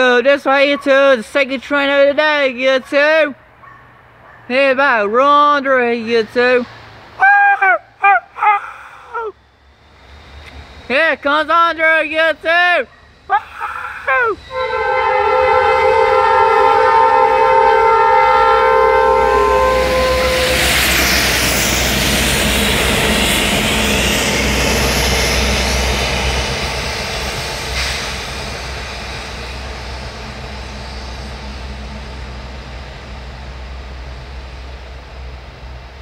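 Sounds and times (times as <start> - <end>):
locomotives rumbling past: 9.0 - 36.0
locomotive air horn chord: 14.4 - 21.1.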